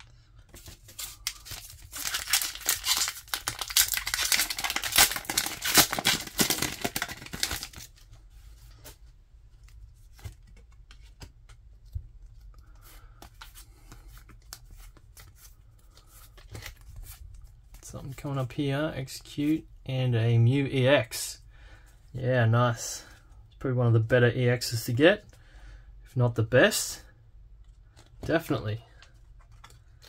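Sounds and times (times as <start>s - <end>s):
trading cards being leafed through: 0.4s - 8.0s
foil wrapper tearing and crinkling: 0.9s - 8.0s.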